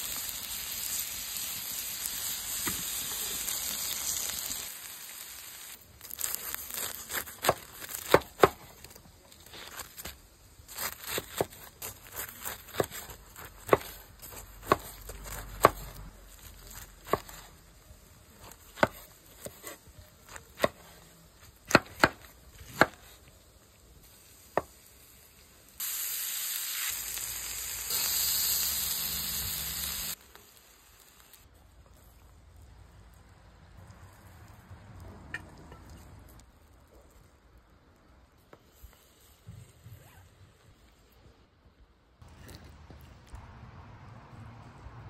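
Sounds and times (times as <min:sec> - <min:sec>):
food sizzling on a griddle: 0:00.0 - 0:32.3
knife chopping on wooden board: 0:07.1 - 0:08.7, 0:10.8 - 0:15.9, 0:17.0 - 0:17.5, 0:18.4 - 0:21.0, 0:21.6 - 0:23.1.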